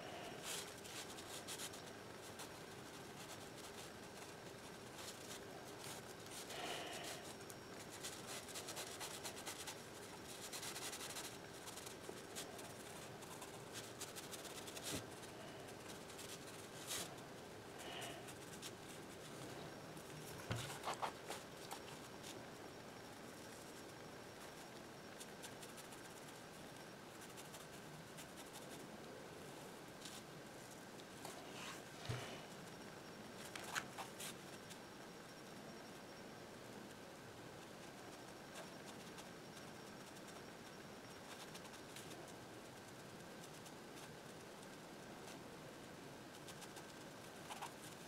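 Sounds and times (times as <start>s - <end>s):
steady low hiss: 0.0s - 48.0s
brush pen rubbing on paper: 20.4s - 22.1s.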